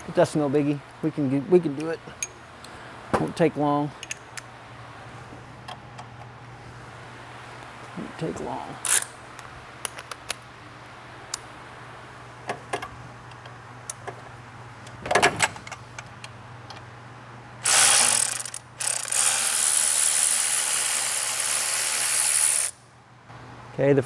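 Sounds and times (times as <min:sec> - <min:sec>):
electric ratchet running: 0:17.6 - 0:22.8.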